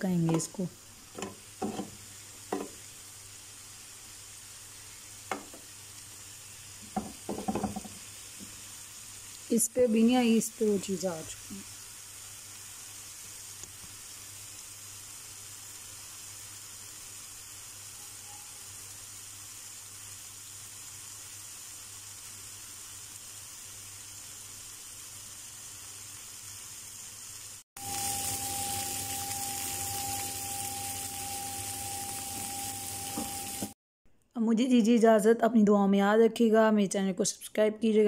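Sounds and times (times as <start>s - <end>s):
chicken sizzling in a frying pan: 0.0s - 33.8s
thin steady tone: 27.8s - 33.8s.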